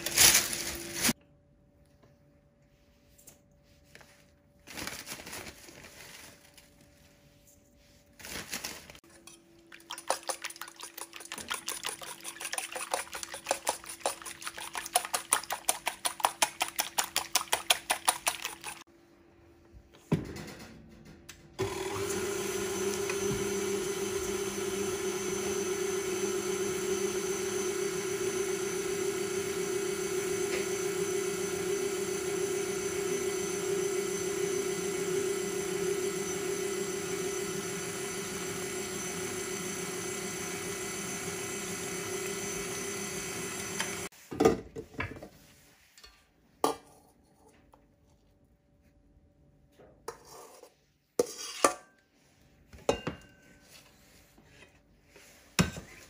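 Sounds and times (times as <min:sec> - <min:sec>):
stand mixer motor hum: 0:21.6 - 0:44.1.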